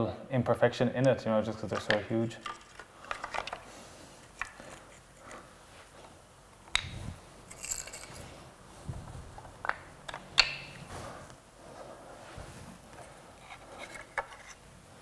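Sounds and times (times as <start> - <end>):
wooden pieces clicking and knocking: 1.7 - 5.0, 9.4 - 10.8
scratchy scrape: 10.9 - 14.6.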